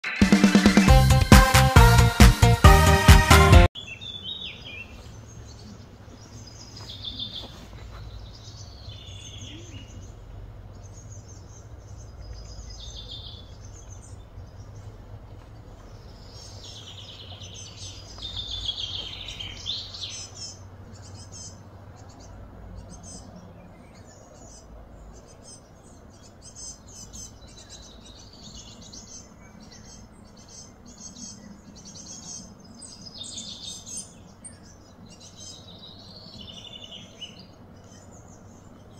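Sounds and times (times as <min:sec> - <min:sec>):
birds chirping and twittering: 0:03.7 - 0:38.9
steady low background rumble: 0:08.0 - 0:33.0.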